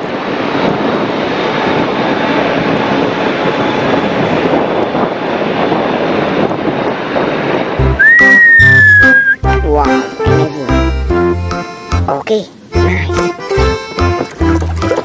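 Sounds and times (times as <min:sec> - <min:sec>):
jet airliner roaring: 0:00.0 - 0:10.2.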